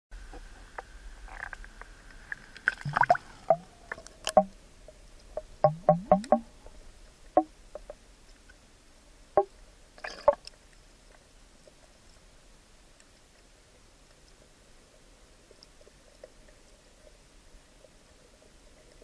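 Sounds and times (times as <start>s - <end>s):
underwater bubbling and knocks: 2.7s - 6.6s, 7.3s - 8.0s.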